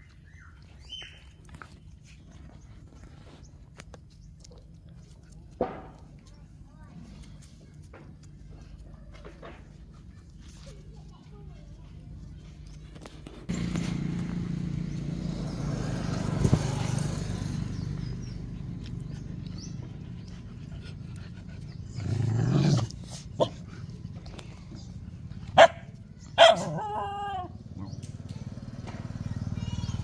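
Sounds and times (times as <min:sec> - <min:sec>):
dog barking: 0:25.6 - 0:27.5.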